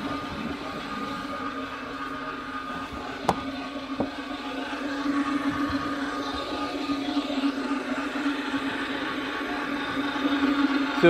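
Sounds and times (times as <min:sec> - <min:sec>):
floor buffer motor hum: 0:00.0 - 0:11.0.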